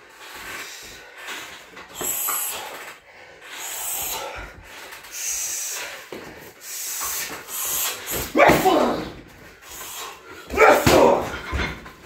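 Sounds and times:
man breathing hard: 0:00.2 - 0:08.3, 0:09.2 - 0:10.5.

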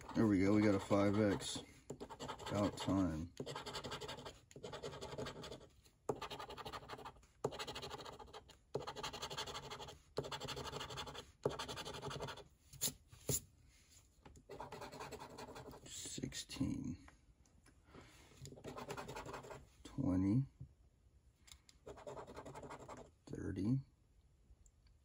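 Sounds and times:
coin scratching lottery ticket: 0:00.0 - 0:12.4.

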